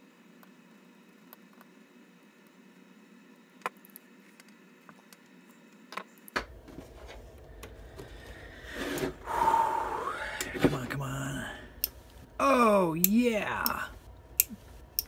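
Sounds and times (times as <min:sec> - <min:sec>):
handling noise rumble: 0:06.4 - 0:15.0.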